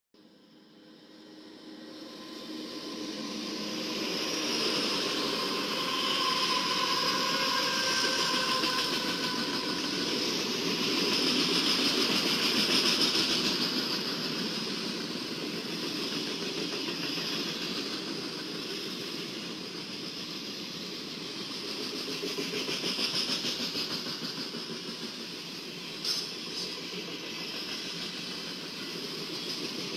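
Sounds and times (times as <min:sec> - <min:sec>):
freight train wheels rumbling on rail: 0:00.4 - 0:29.9
thin whining tones: 0:00.9 - 0:11.2.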